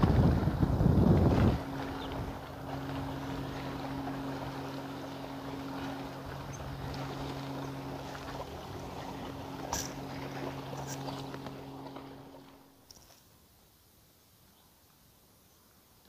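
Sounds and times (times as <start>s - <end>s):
wind on microphone: 0.0s - 4.7s
steady low hum: 0.0s - 14.1s
faint water sounds: 0.0s - 16.0s.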